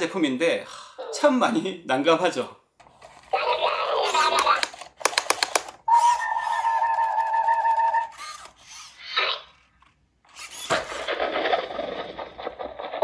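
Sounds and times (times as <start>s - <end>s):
robot electronic vocal sounds: 3.3s - 4.6s.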